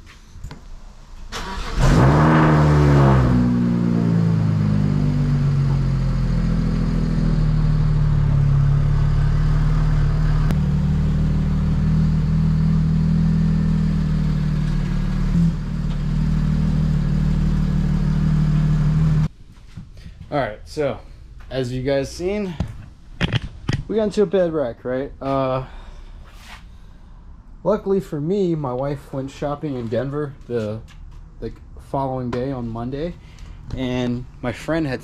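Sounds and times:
car engine starting and idling: 1.2 - 19.3.

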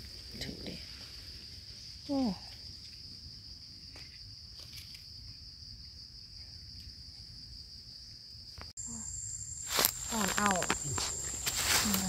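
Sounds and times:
insect droning shrilly: 8.6 - 12.0.

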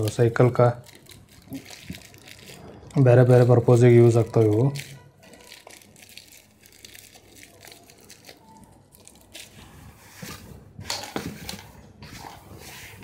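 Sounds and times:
plastic packet crinkling and tearing: 0.0 - 10.0.

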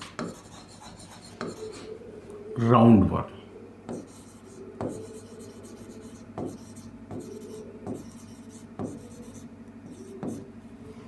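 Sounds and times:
marker pen scratching on whiteboard: 0.0 - 1.8, 3.9 - 10.5
marker tip tapping board: 3.9 - 4.1, 6.4 - 8.2, 8.8 - 9.1, 10.2 - 10.4.

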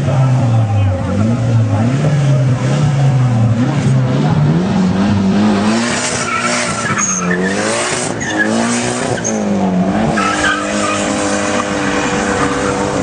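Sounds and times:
vehicle engine revving: 0.0 - 13.0
tyres squealing: 6.0 - 13.0.

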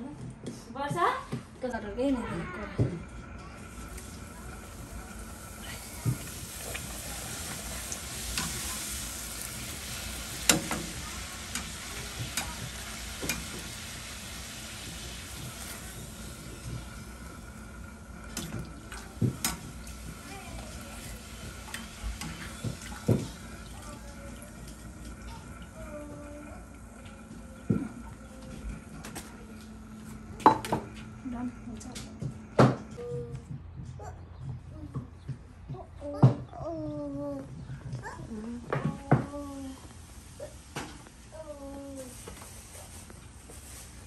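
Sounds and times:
dough deep-frying in hot oil: 3.4 - 29.5, 39.0 - 44.0.

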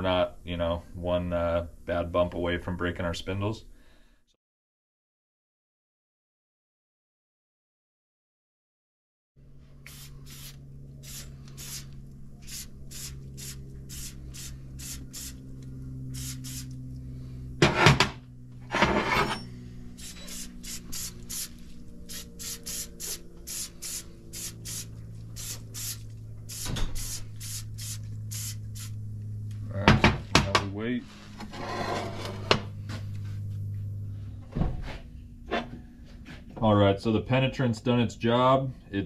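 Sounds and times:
low hum: 9.4 - 39.0
aerosol can spraying: 9.8 - 15.4, 16.1 - 16.8, 20.0 - 29.0.

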